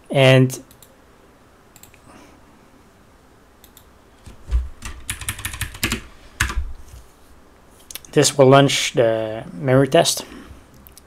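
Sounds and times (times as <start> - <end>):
keyboard typing: 3.6 - 6.6.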